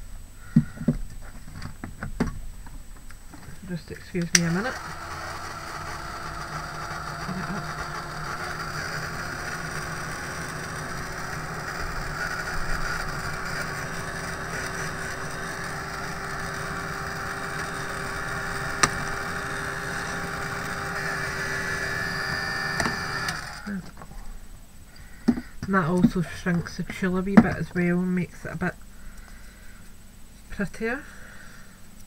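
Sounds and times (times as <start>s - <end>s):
heat gun fan blowing: 3.6s - 23.8s.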